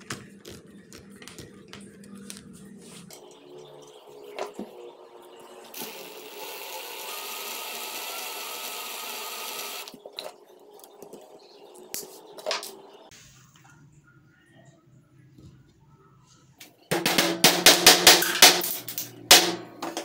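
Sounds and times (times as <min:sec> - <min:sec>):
drill motor running: 0:05.7 - 0:09.9.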